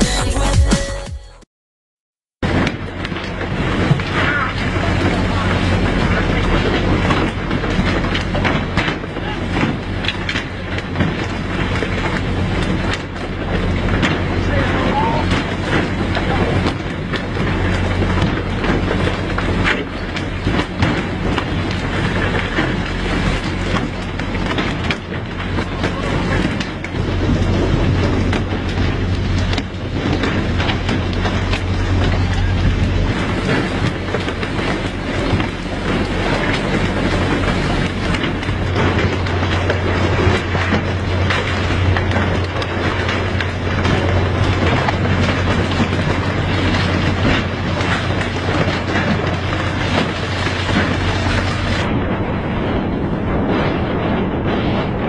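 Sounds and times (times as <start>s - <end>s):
boat engine running: 2.4s - 55.0s
water spray rushing: 21.0s - 52.0s.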